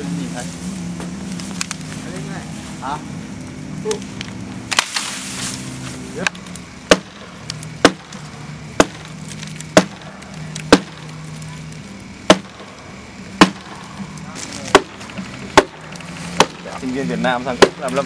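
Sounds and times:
axe chopping wood: 0:06.2 - 0:11.2, 0:12.2 - 0:12.7, 0:13.4 - 0:13.9, 0:14.6 - 0:16.8, 0:17.5 - 0:18.0.

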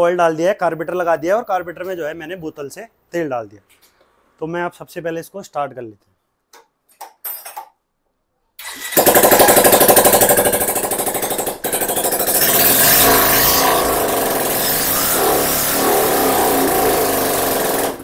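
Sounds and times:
electric starter cranking: 0:08.6 - 0:18.0.

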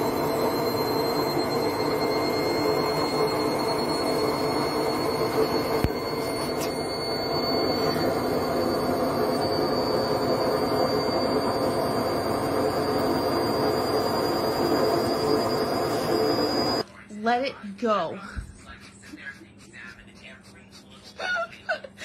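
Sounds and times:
washing machine drum spinning: 0:00.0 - 0:16.8.

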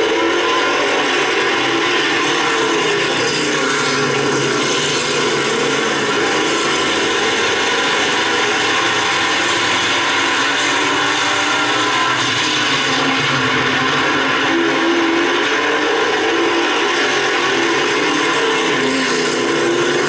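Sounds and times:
race car engines droning: 0:00.0 - 0:20.0.

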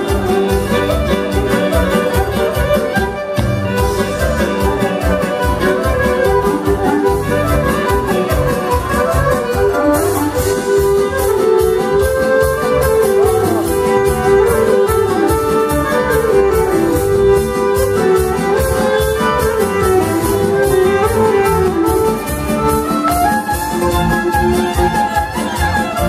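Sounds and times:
band playing folk dance music: 0:00.0 - 0:26.0
violin melody: 0:00.0 - 0:26.0.

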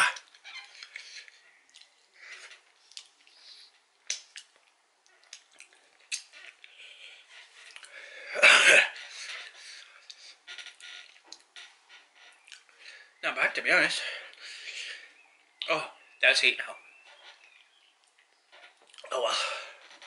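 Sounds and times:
man chewing and lip smacks: 0:00.2 - 0:02.0, 0:02.7 - 0:06.8, 0:07.6 - 0:08.0, 0:11.0 - 0:11.5, 0:12.4 - 0:12.8, 0:17.5 - 0:19.1.

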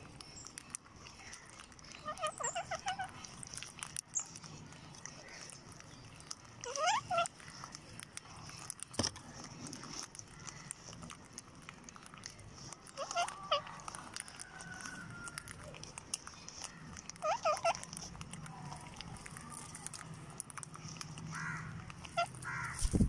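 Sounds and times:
birds pecking grain: 0:00.0 - 0:23.0
parakeets squawking: 0:01.0 - 0:03.6, 0:04.2 - 0:07.7, 0:12.5 - 0:18.2, 0:21.2 - 0:23.0.

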